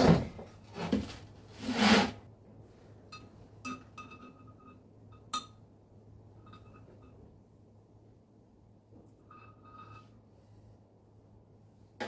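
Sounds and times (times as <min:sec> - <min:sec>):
metal scraping rub: 0:00.7 - 0:02.2, 0:09.2 - 0:10.3.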